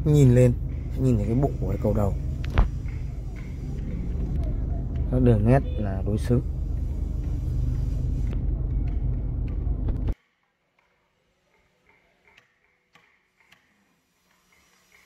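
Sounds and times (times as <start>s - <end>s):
loud low rumble: 0.0s - 10.2s.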